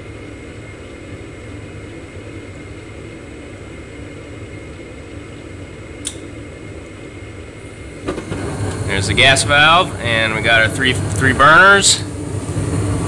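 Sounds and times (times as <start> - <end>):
furnace inducer motor whirring: 0.0 - 13.0
short click: 6.0 - 6.2.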